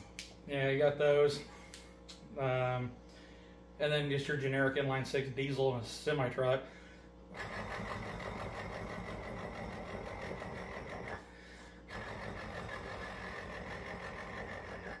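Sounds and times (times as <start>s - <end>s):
man imitating diesel engine: 7.4s - 11.2s, 11.9s - 15.0s.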